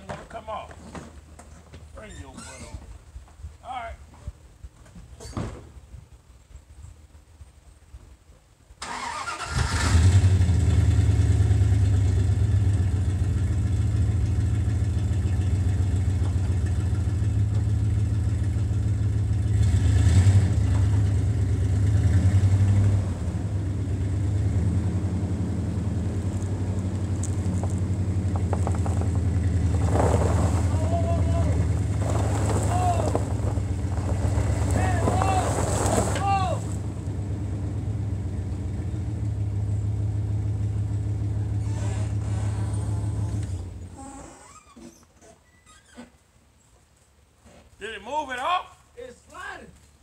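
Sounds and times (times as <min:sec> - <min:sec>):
pickup truck engine: 0:08.8 - 0:44.2.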